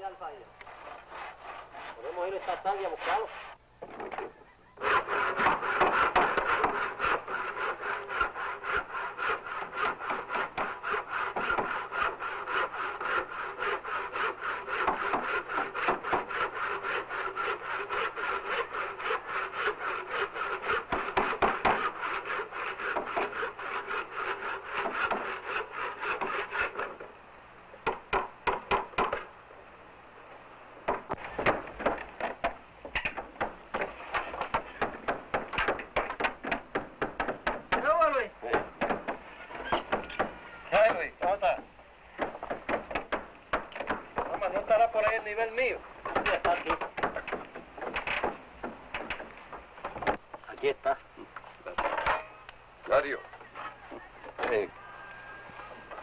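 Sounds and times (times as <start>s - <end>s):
hand tool rasping wood: 0.6s - 3.6s, 4.8s - 27.0s, 31.1s - 41.4s, 46.1s - 49.3s.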